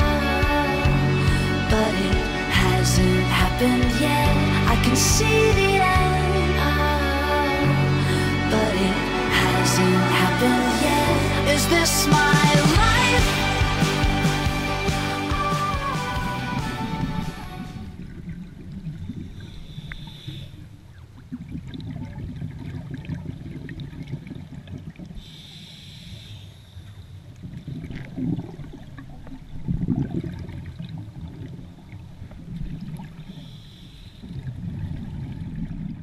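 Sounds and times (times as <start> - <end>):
exhaled bubbles rumbling: 21.2 - 25.2, 27.4 - 33.4, 34.3 - 36.0
regulator inhalation hiss: 25.2 - 26.5.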